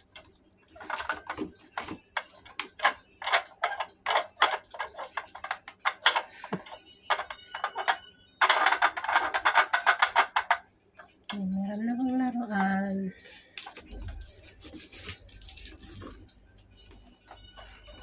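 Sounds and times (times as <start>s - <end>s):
toy plastic clicks and rattles: 0.8s - 13.0s.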